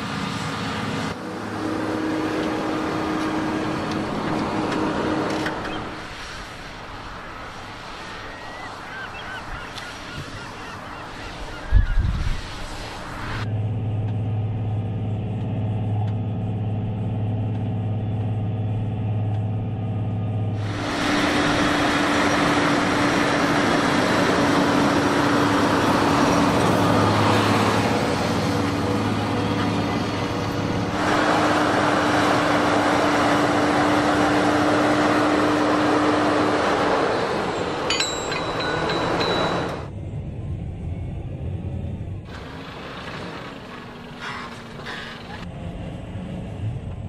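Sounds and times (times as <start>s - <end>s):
tractor engine under heavy load: 0.0s - 7.0s, 13.5s - 47.0s
rushing noise: 20.4s - 46.7s.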